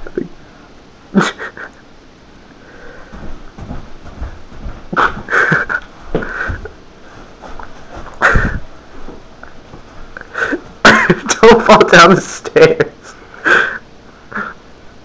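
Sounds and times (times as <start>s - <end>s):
person breathing in bursts: 2.6s - 3.3s, 6.2s - 7.3s, 13.1s - 14.6s
feet dancing on floor: 3.0s - 10.9s.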